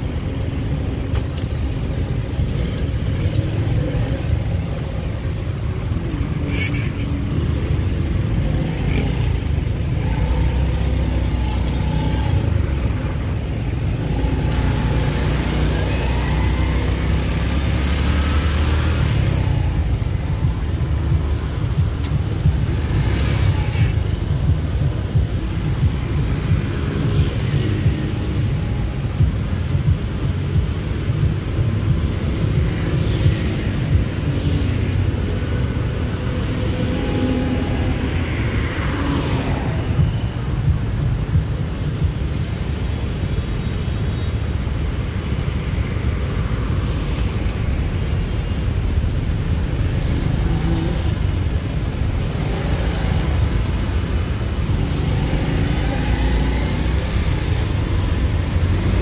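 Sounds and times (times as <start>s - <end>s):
small motorcycle engine running: 7.7s - 30.0s.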